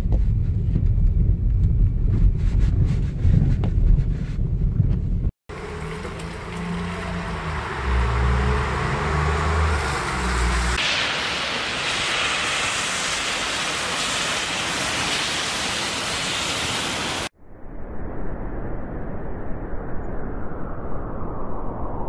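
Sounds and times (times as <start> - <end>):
car driving rumble from inside: 0.0 - 10.8
cars passing on slushy road: 5.5 - 17.3.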